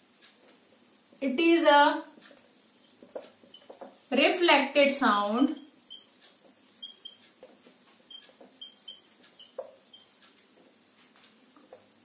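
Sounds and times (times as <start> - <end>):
marker squeaking on whiteboard: 2.9 - 3.9, 5.4 - 10.4.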